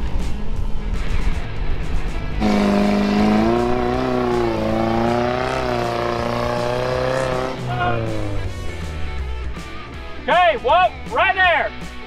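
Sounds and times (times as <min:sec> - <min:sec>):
pickup engine revving under load: 0:02.4 - 0:09.8.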